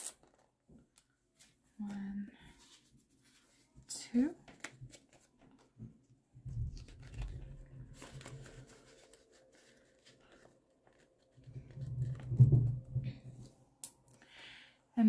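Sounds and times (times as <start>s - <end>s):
paper money crinkling: 6.8s - 12.2s.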